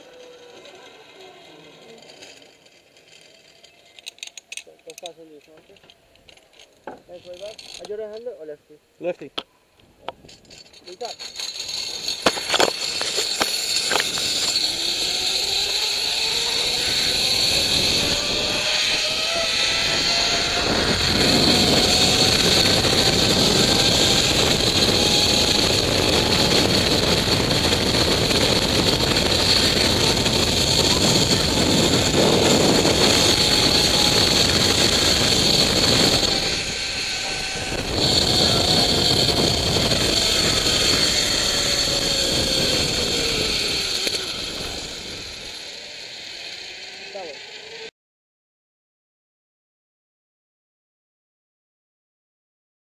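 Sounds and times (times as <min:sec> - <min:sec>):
zip-line pulley whine on cable: 0:00.0 - 0:05.3, 0:10.2 - 0:47.9
rushing wind: 0:11.3 - 0:47.0.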